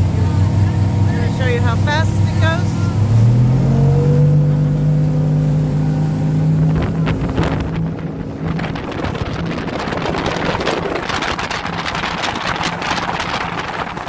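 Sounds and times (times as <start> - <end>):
motorboat engine running: 0.0 - 14.0
wind buffeting microphone: 6.5 - 14.0.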